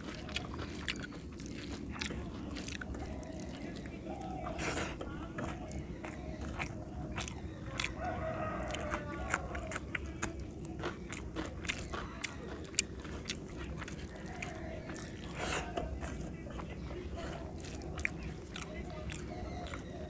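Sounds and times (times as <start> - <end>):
chicken calling: 0.0 - 20.0
wet chewing and lip smacking: 0.0 - 20.0.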